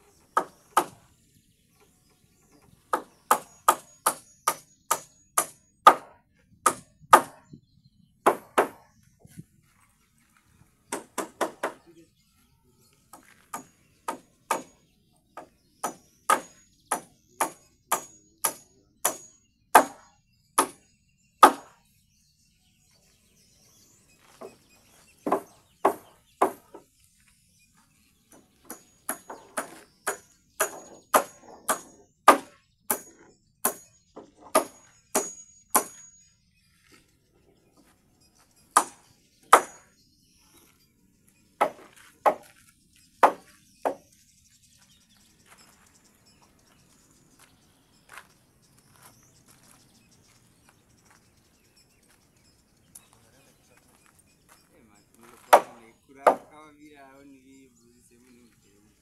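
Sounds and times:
hammer striking nails with metallic ring: 2.9 - 7.5, 13.2 - 14.8, 15.4 - 21.8, 28.3 - 36.3, 38.7 - 40.0, 55.4 - 56.5.

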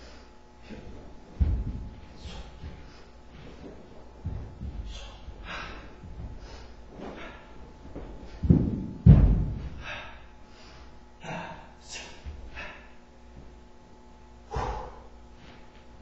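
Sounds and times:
person landing on floor: 0.6 - 10.0
sharp breaths and exhalations: 2.1 - 3.7, 4.8 - 7.6, 9.7 - 13.0, 14.5 - 15.7.

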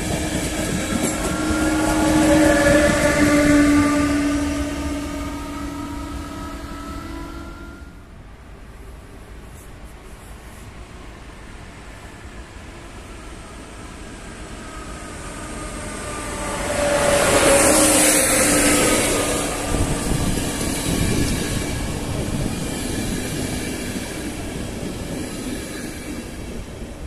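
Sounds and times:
train wheels rumbling and clicking: 0.0 - 3.9, 17.0 - 27.0
electric locomotive whine: 0.0 - 9.4, 10.7 - 27.0.

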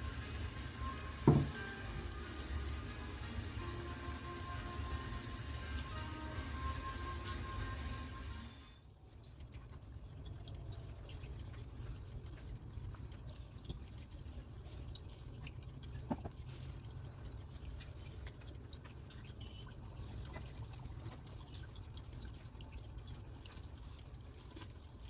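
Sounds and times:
water trickling and dripping: 0.0 - 25.0.

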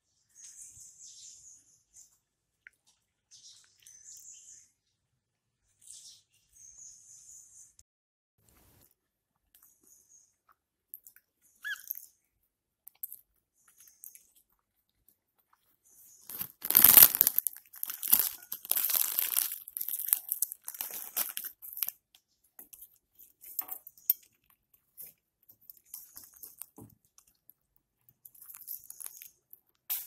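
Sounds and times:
plastic crinkling and crunching: 16.3 - 22.0, 28.2 - 30.0.

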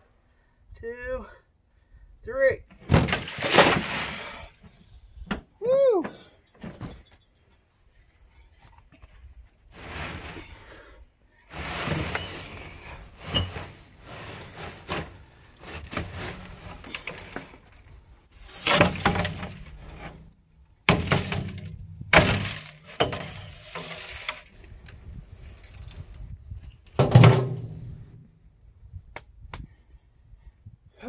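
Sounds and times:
scrap metal clanking onto pile: 18.6 - 20.2, 20.9 - 24.5
heavy metal crashes: 20.9 - 23.6.

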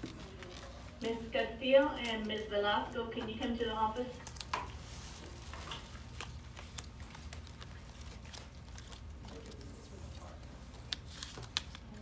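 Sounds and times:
paper cards clicking and rustling: 0.0 - 1.1, 4.1 - 12.0
low room hum: 0.0 - 12.0.

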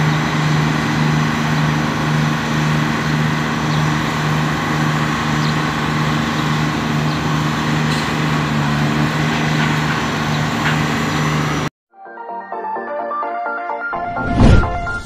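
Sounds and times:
diesel crane engine running: 0.0 - 11.7.

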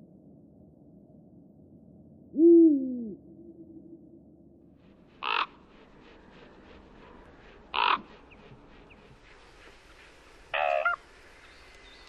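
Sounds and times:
owl hooting: 2.4 - 3.8, 5.2 - 5.6, 7.7 - 11.4
harsh caw-like bird calls: 5.2 - 5.6, 7.7 - 8.4, 10.6 - 11.0.

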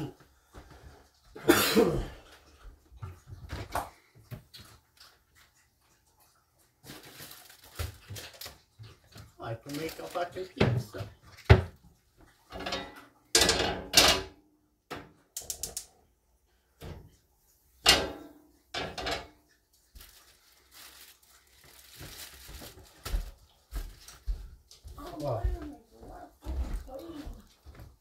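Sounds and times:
dishes and pans clanking: 12.4 - 15.6, 17.8 - 19.5
soft rustling: 19.7 - 28.0.

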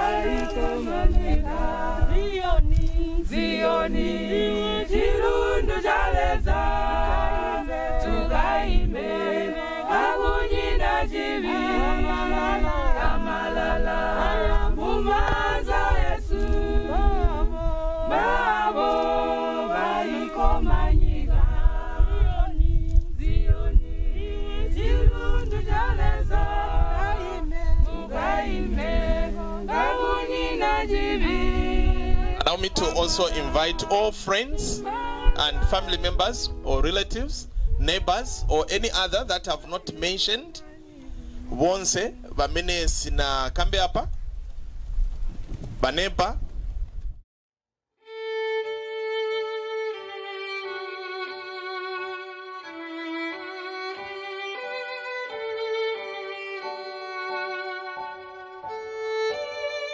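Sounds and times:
group singing in harmony: 0.0 - 42.6
low rumble: 20.5 - 29.7.

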